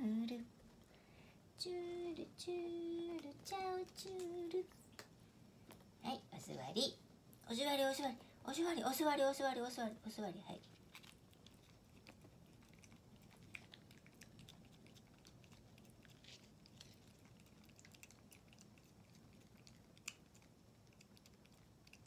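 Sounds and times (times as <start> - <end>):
kitten licking and eating: 0.5 - 6.0, 10.0 - 22.0.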